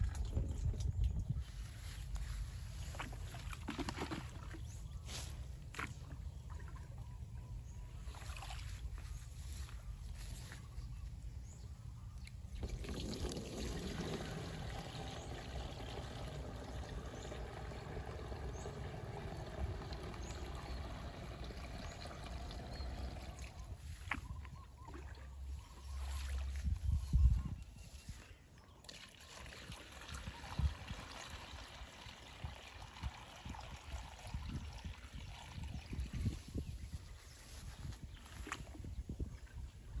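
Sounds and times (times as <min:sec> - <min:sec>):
water trickling: 0:12.5 - 0:26.9, 0:28.8 - 0:37.0.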